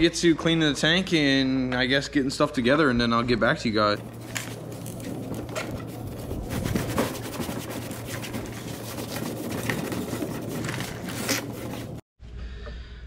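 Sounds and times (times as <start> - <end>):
steady low hum: 0.0 - 13.0
rag scrubbing metal tank: 4.0 - 12.0.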